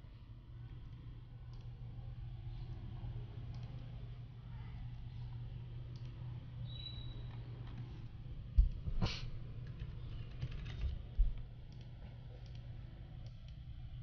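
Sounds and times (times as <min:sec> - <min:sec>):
low hum: 0:00.0 - 0:14.0
typing on keyboard: 0:09.6 - 0:12.6.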